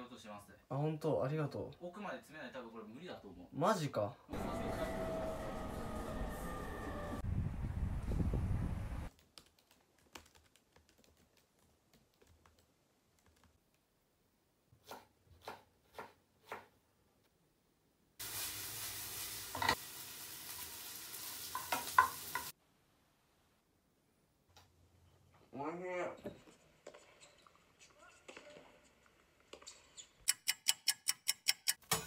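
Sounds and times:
knife chopping on cutting board: 14.8s - 16.7s
noodles sizzling in frying pan: 18.2s - 22.6s.

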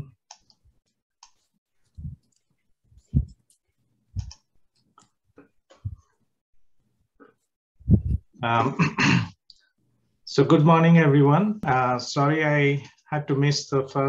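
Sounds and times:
computer mouse clicks: 0.3s - 0.6s, 1.2s - 1.4s, 4.2s - 5.1s.

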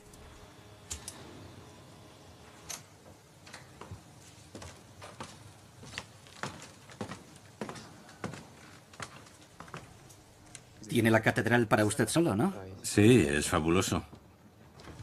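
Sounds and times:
footsteps: 3.0s - 10.2s.

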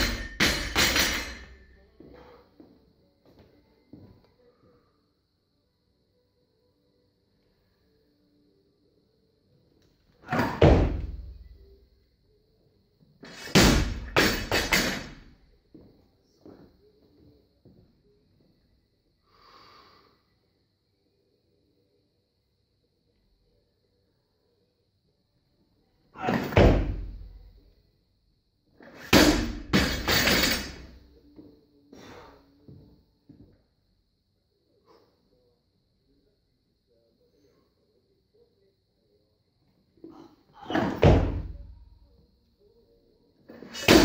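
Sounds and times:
barbell dropped on rubber mat: 0.0s - 1.6s, 10.3s - 11.4s, 13.3s - 15.3s, 26.2s - 27.4s, 28.9s - 31.0s, 40.6s - 41.8s, 43.7s - 44.0s
bumper plates slamming and bouncing: 10.3s - 11.5s, 13.3s - 15.3s, 26.2s - 27.4s, 29.0s - 30.9s, 40.6s - 41.8s
heavy thud: 10.3s - 11.5s, 13.3s - 15.3s, 26.2s - 27.4s, 29.1s - 30.9s, 40.6s - 41.8s.

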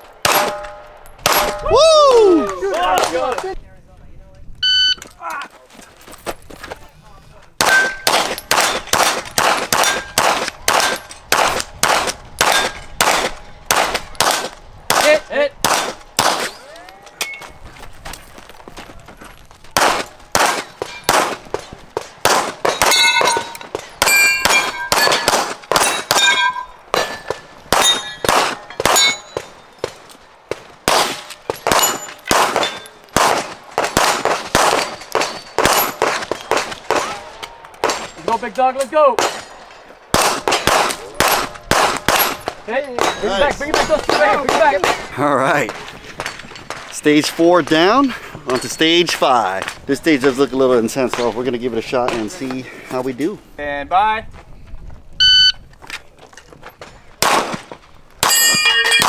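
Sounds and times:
rapid pistol shots: 0.2s - 1.6s, 7.6s - 16.5s, 19.8s - 23.3s, 24.0s - 26.3s, 27.7s - 37.2s, 39.2s - 45.1s, 57.2s - 57.7s
steel plate ringing: 22.7s - 29.8s, 58.2s - 59.0s.

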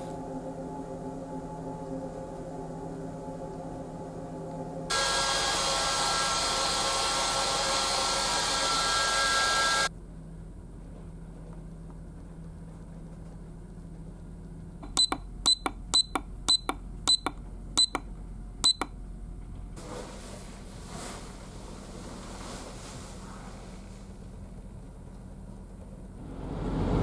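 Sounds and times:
hair dryer blowing: 4.9s - 9.9s
alarm clock button beeps: 14.8s - 18.0s, 18.6s - 18.9s.

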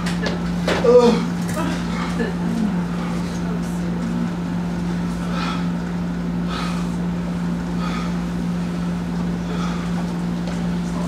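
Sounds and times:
constant background noise: 0.0s - 11.0s
steady low hum: 0.0s - 11.0s.

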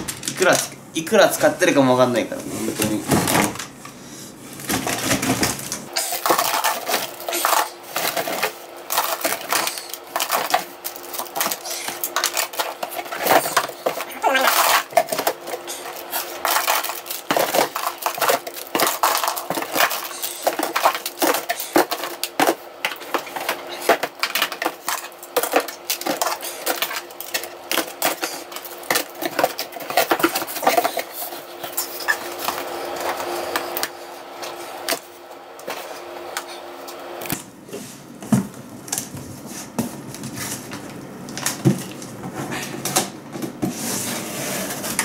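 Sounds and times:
plastic toys clattering in a box: 4.7s - 33.2s.

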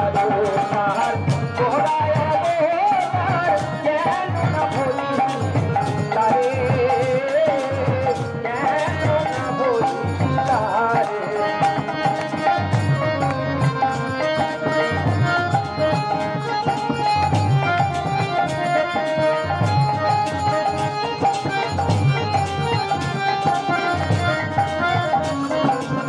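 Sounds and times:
hand drum rhythm: 0.0s - 26.0s
held melodic notes: 0.0s - 26.0s.

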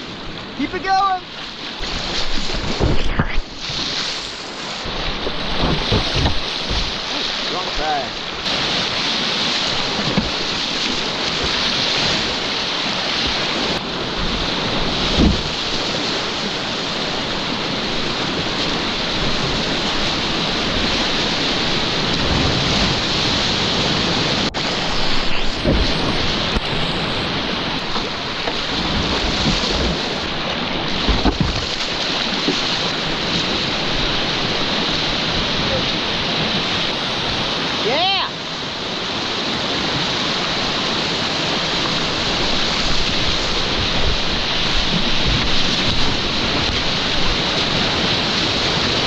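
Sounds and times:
whitewater rapids rushing: 0.0s - 49.0s
wind buffeting microphone: 1.8s - 3.8s, 4.8s - 37.8s
dull thumps: 5.2s - 7.2s, 30.9s - 31.9s.

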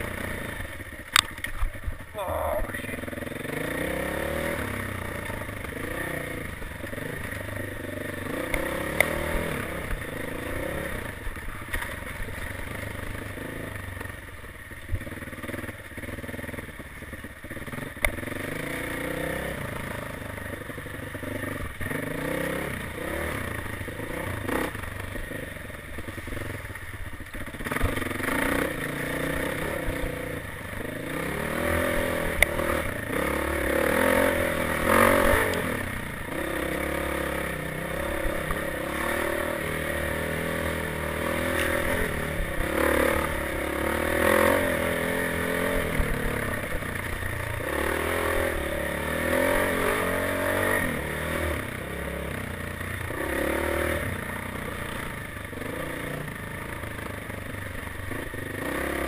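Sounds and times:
dirt bike engine revving: 0.0s - 59.0s
sharp clicks: 1.1s - 1.7s.

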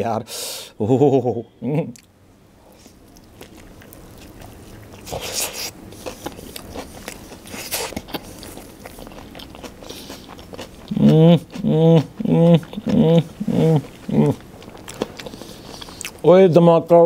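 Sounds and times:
person crunching and chewing: 2.7s - 16.3s.

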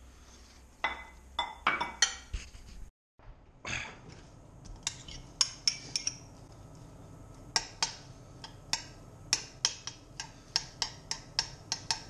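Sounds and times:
fork tapping frying pan: 7.5s - 12.0s.

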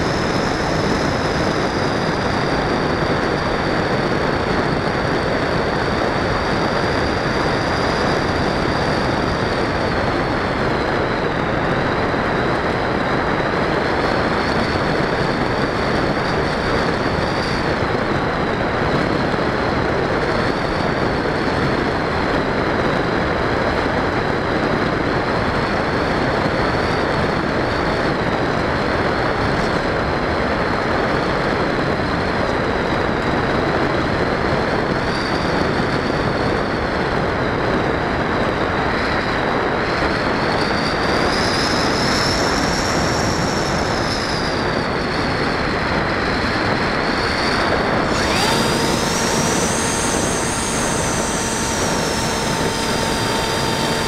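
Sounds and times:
electric motor whine: 0.0s - 19.0s, 38.9s - 54.0s
rushing airflow: 0.0s - 20.9s, 37.2s - 54.0s.

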